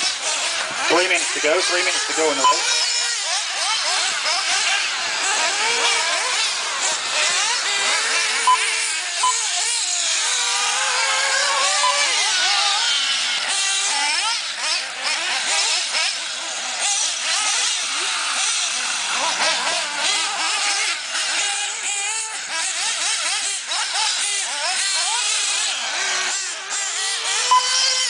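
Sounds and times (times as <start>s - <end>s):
rc car engines whining: 0.0s - 28.0s
short beeps: 2.4s - 2.6s, 9.2s - 9.4s.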